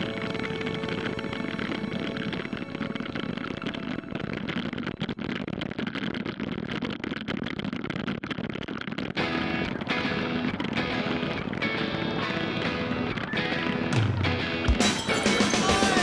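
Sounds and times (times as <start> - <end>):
music: 0.0 - 5.0, 9.2 - 16.0
bicycle rattling over cobblestones: 0.0 - 16.0.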